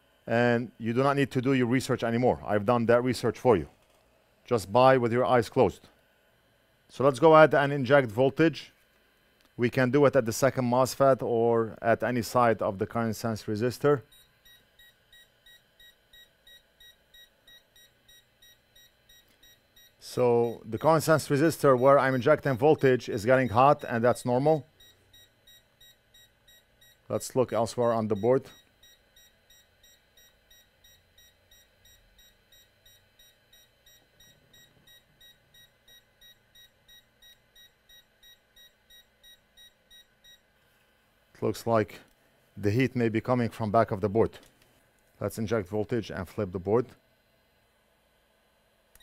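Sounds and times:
faint rapid electronic beeping: 14.1 - 27.0, 27.7 - 40.4.

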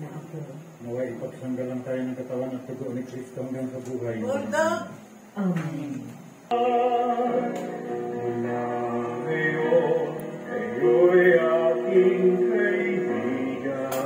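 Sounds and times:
hymn music through tv speaker: 6.5 - 14.0.

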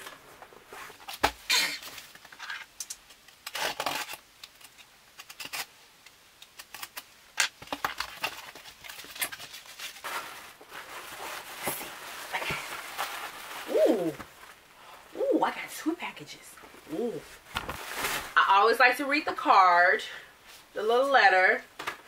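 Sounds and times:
tissue paper rustling: 8.1 - 14.7, 17.2 - 18.6.

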